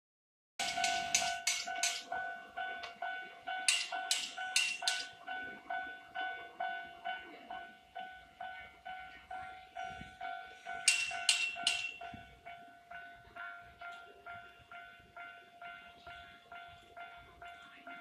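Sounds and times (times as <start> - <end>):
level crossing warning bell ringing: 0.6 - 18.0.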